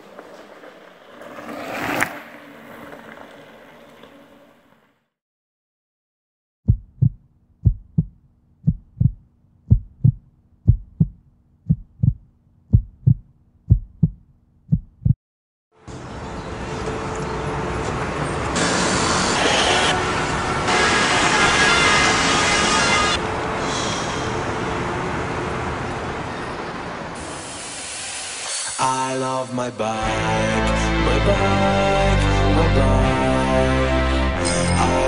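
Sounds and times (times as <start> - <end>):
heartbeat thumps: 6.7 - 15.2.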